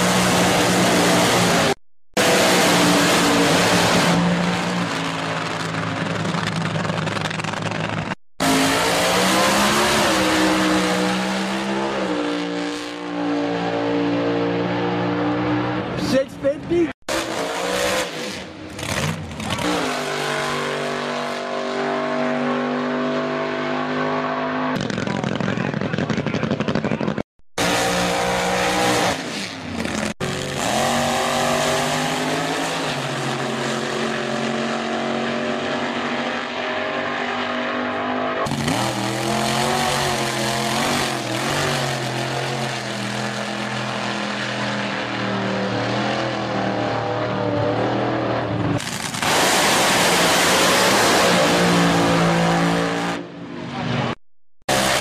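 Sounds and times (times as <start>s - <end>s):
drag racing car engines: 0.0s - 55.0s
full-throttle car launch: 48.5s - 52.6s.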